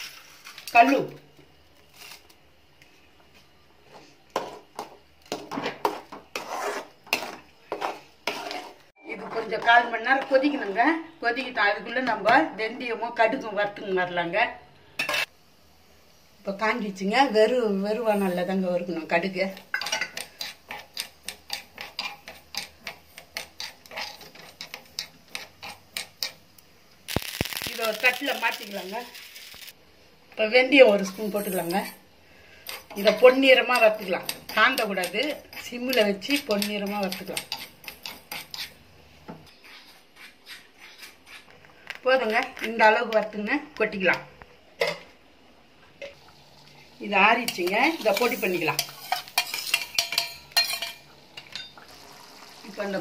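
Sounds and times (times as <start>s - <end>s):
spatula scraping a pan: 5.7s - 9.7s, 19.6s - 26.4s, 31.1s - 38.8s, 39.4s - 41.6s, 47.5s - 51.0s
seeds rattling in a pan: 27.1s - 29.8s.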